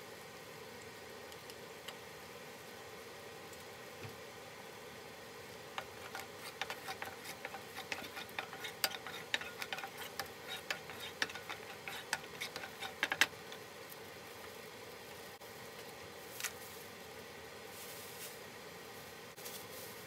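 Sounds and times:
sauce crackling in hot oil: 0.1 - 16.6
wooden spatula stirring: 5.7 - 13.7.

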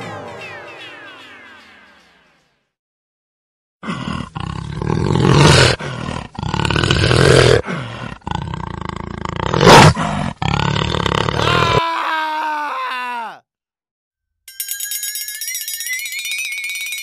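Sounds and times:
dinosaur roars: 3.8 - 11.8.

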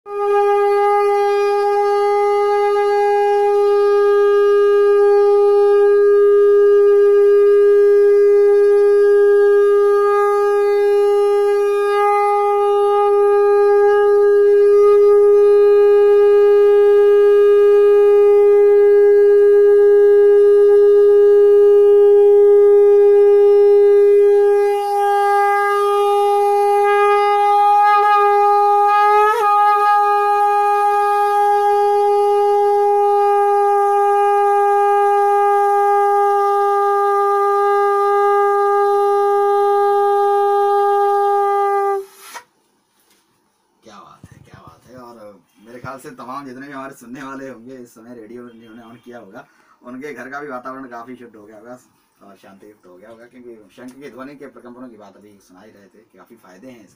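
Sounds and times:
conch shell blown: 0.1 - 42.6.

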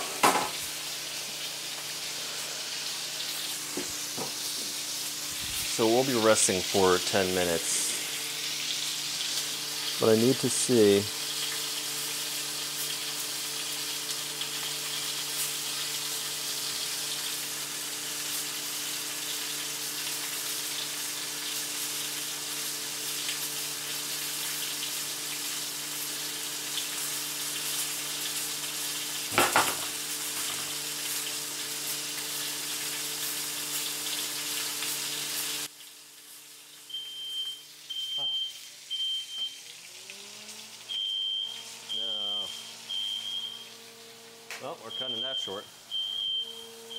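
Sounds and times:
steaks sizzling in pan: 0.0 - 44.6.

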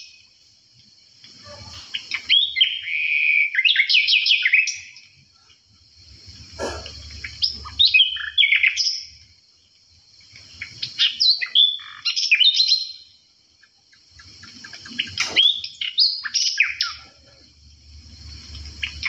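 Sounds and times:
songbird singing whistled notes: 1.2 - 5.2, 6.1 - 9.3, 10.3 - 17.2, 18.2 - 19.0.

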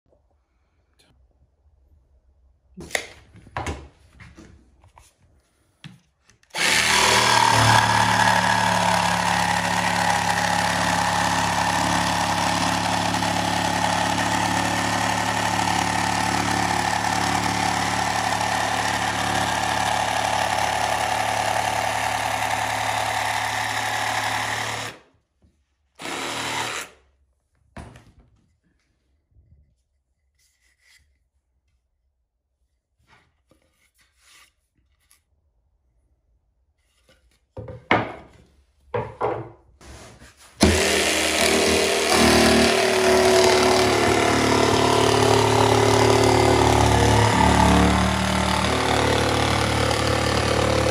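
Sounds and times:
jigsaw cutting through board: 6.5 - 25.1, 26.0 - 27.0, 40.6 - 50.9.

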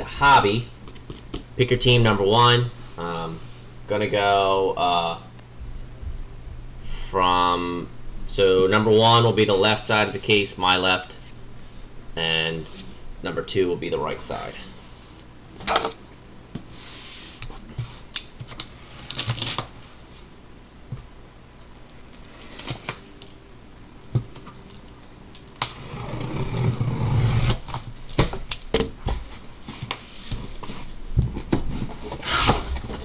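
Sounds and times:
cardboard scraping and rubbing: 25.7 - 27.8, 29.1 - 33.0.

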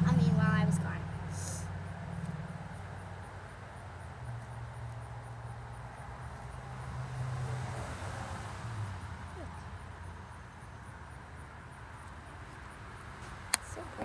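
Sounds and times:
low mechanical rumble: 0.0 - 6.4.

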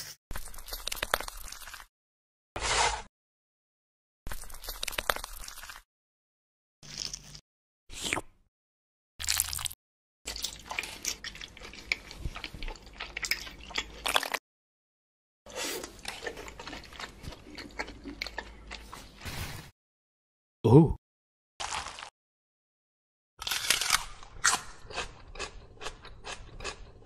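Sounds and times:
crunching fried noodles: 9.2 - 14.4, 21.6 - 22.1, 23.4 - 27.0.

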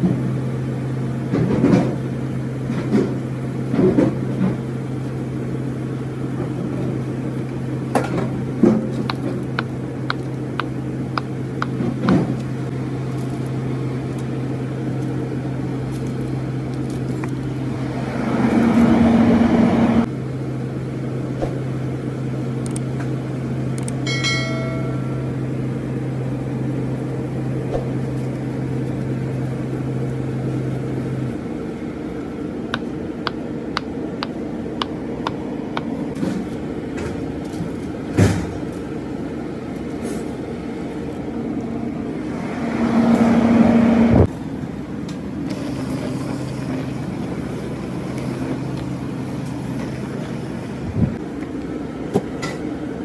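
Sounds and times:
kitchen equipment hum: 0.0 - 53.0
low drone: 41.4 - 51.2.

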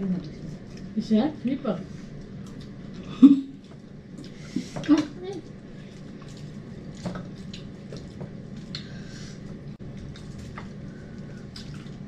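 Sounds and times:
wet chewing: 2.1 - 12.0
light clicks and rustles of food: 3.6 - 12.0.

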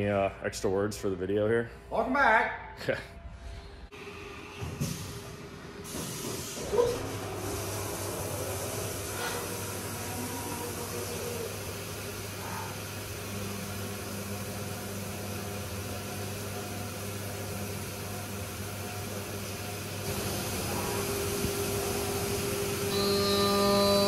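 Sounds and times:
coolant spray hiss: 5.8 - 22.9
milling machine cutting: 20.0 - 24.0
high steady tone: 21.8 - 24.0.

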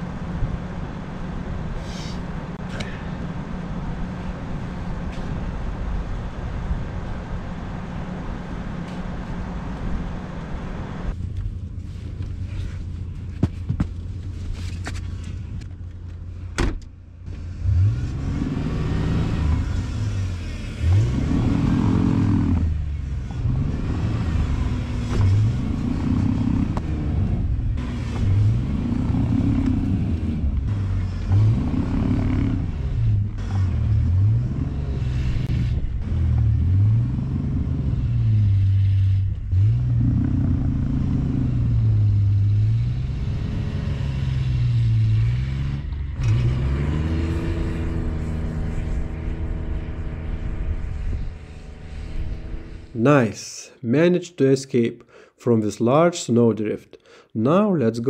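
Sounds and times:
car engine revving: 17.2 - 53.0.

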